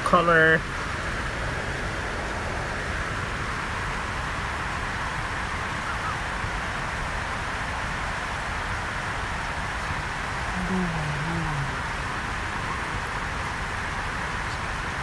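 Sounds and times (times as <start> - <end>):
steady background hiss: 0.0 - 15.0.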